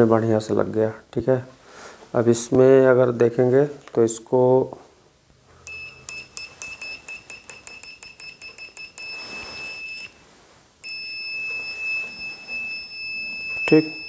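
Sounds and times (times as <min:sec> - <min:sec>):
multimeter continuity buzzer tone: 0:05.6 - 0:10.2, 0:10.8 - 0:14.0.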